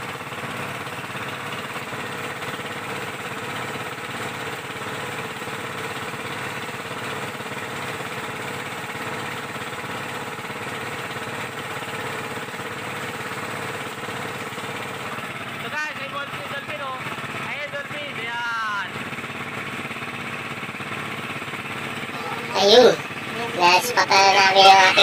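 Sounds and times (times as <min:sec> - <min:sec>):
boat engine running: 0:00.0 - 0:25.0.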